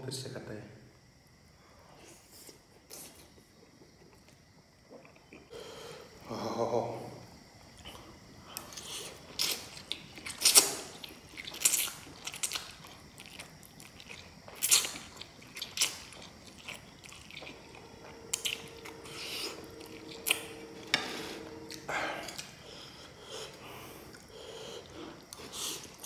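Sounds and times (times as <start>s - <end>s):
faint steady hum: 0.0s - 26.0s
chewing: 7.8s - 20.8s, 21.5s - 26.0s.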